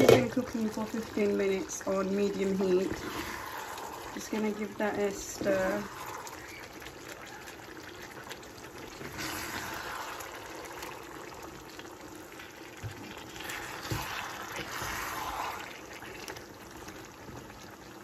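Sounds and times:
spatula stirring thick sauce: 0:02.4 - 0:04.7, 0:05.4 - 0:11.8, 0:12.4 - 0:17.2.

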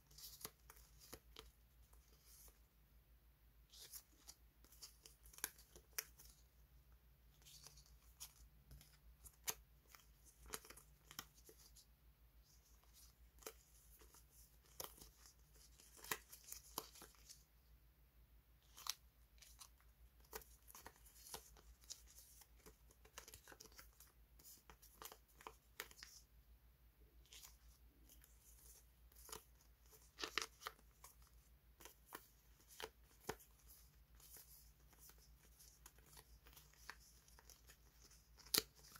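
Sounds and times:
stickers crackling and rustling: 0:27.3 - 0:38.9.

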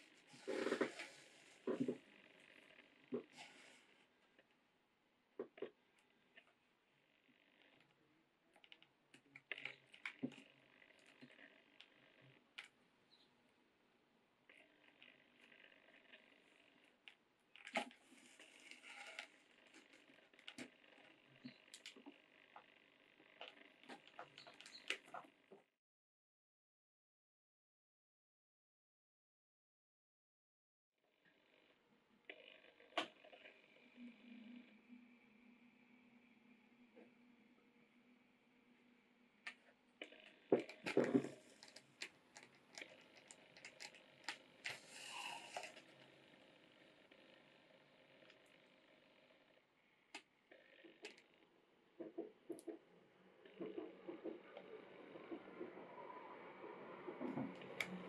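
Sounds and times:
thread hissing through leather: 0:44.7 - 0:45.8.

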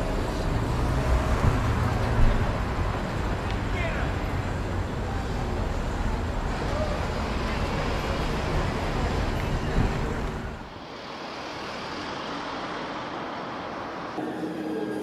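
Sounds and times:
road traffic rumble: 0:00.0 - 0:14.3
traffic hiss: 0:06.5 - 0:14.2.

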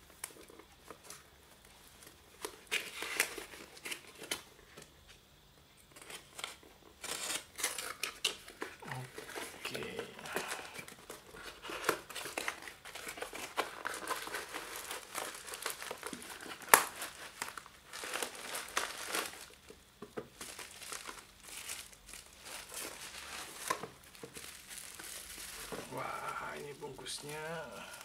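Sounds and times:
plastic wrapping rustling: 0:00.0 - 0:04.5, 0:06.0 - 0:28.0
cardboard box crinkling: 0:06.0 - 0:28.0.

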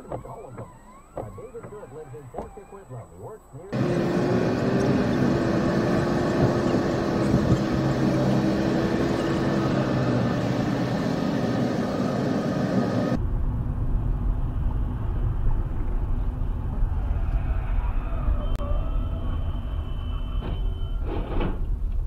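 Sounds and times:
faint engine hum: 0:01.4 - 0:22.0
low rumble: 0:12.8 - 0:22.0.

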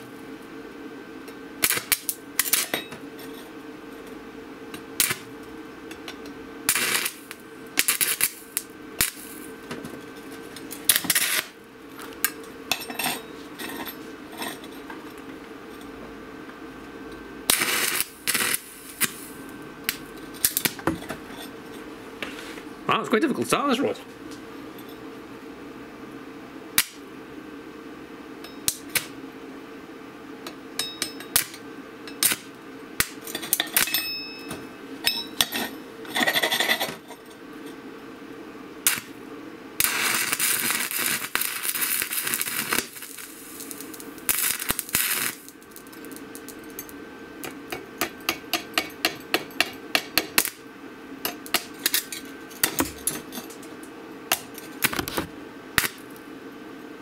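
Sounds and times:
welding arc crackling: 0:01.6 - 0:02.7, 0:04.8 - 0:05.4, 0:06.6 - 0:12.7, 0:17.4 - 0:20.8, 0:26.8 - 0:27.1, 0:28.7 - 0:29.2, 0:31.4 - 0:31.6, 0:32.2 - 0:33.9, 0:38.8 - 0:39.2, 0:39.8 - 0:50.7, 0:55.8 - 0:56.2.

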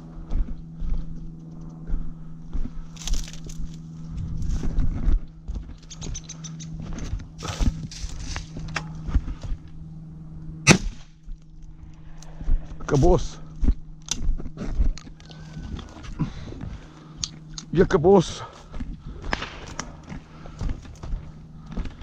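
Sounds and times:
steady low hum: 0:00.0 - 0:22.0
rustling and handling gear: 0:02.6 - 0:09.9, 0:11.4 - 0:17.5, 0:18.4 - 0:22.0
loud shotgun shot: 0:10.6 - 0:11.1, 0:19.3 - 0:19.9.

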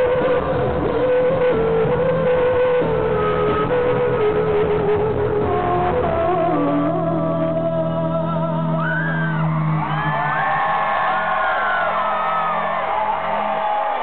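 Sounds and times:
rock band playing: 0:00.0 - 0:14.0
audience screaming and whooping: 0:08.6 - 0:14.0.

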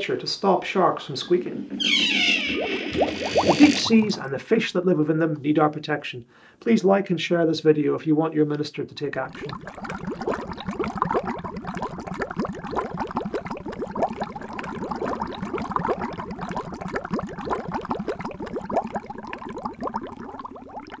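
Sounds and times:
water bubbling: 0:01.2 - 0:04.4, 0:09.2 - 0:21.0.

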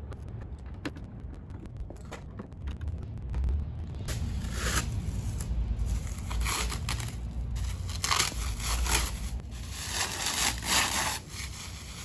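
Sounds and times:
low steady rumble: 0:00.0 - 0:12.0
plastic film crinkling: 0:05.3 - 0:12.0.

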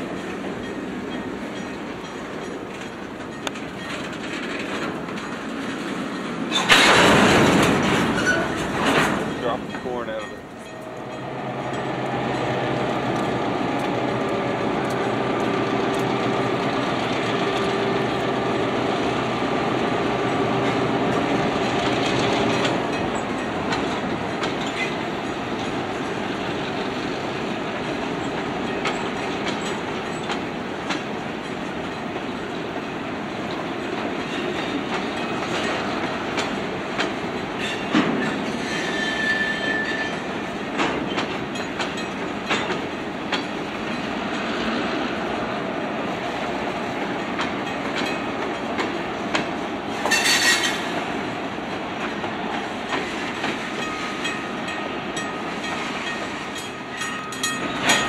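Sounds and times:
diesel locomotive engines droning: 0:00.0 - 0:58.0
train wheels clicking over rail joints: 0:00.0 - 0:58.0
high wheel squeal: 0:08.0 - 0:08.8, 0:37.6 - 0:40.4, 0:50.0 - 0:50.9.

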